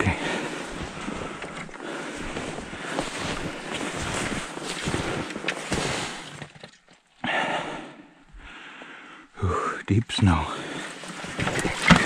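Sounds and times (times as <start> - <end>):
footsteps crunching through snow: 0.0 - 6.4
branches brushing against clothing: 0.0 - 7.2, 10.8 - 12.0
rustling crack: 0.3 - 7.1, 11.0 - 12.0.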